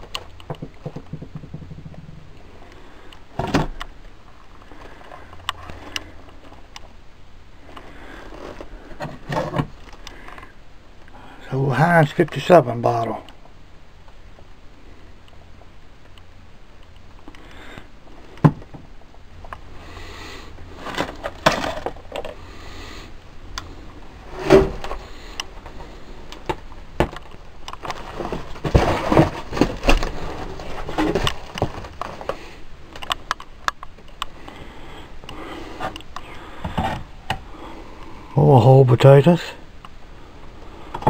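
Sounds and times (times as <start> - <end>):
knocks and clicks of handling: 0.0 - 2.4.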